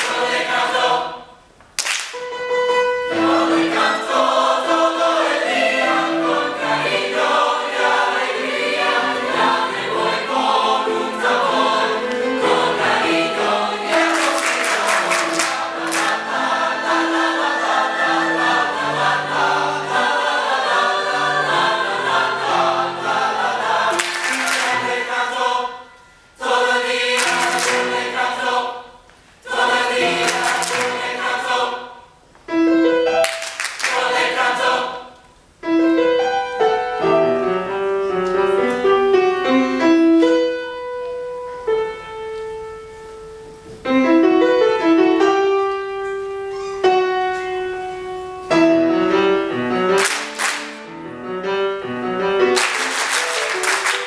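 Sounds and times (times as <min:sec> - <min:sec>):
mixed choir singing in parts: 0:00.0 - 0:02.1, 0:03.0 - 0:32.2, 0:33.1 - 0:35.3, 0:48.8 - 0:51.0, 0:52.5 - 0:54.0.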